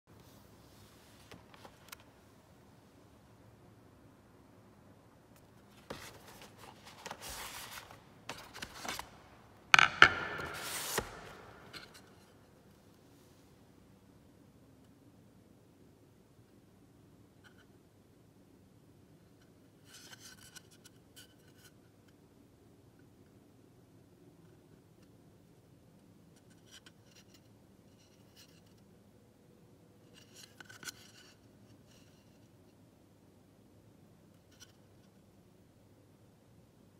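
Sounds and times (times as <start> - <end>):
cardboard scraping and rustling: 5.7 - 9.2, 10.2 - 12.1.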